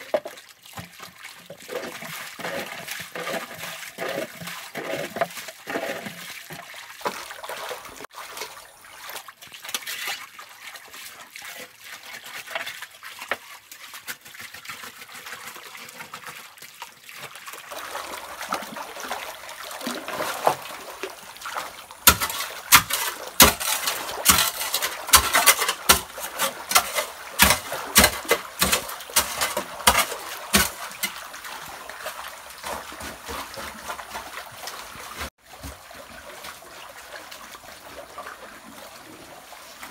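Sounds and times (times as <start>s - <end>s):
stream water trickling: 0.0s - 39.9s
quick sharp splashes and clicks: 12.5s - 35.3s.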